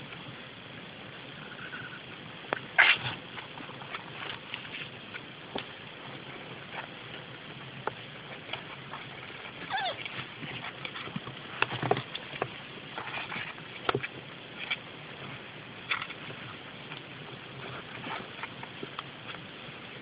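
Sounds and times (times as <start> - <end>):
kitten mewing: 9.7 - 10.0.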